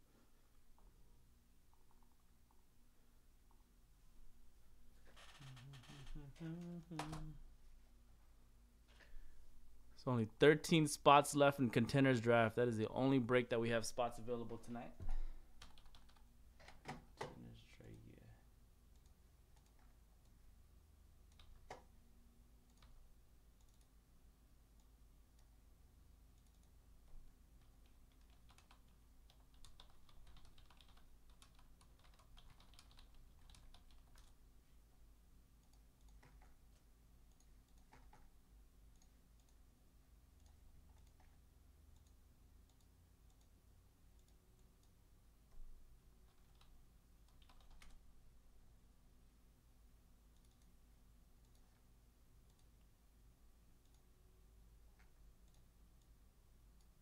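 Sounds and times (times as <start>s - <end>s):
low steady hum: 0.0s - 57.0s
keyboard typing: 15.6s - 17.1s, 21.2s - 22.0s, 22.7s - 23.0s, 27.6s - 34.4s, 35.6s - 39.6s, 40.4s - 43.5s, 44.2s - 48.0s.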